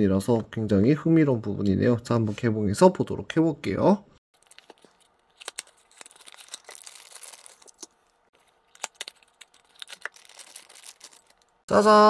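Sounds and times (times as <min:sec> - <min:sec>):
packaging rustling: 0:04.4 - 0:11.6.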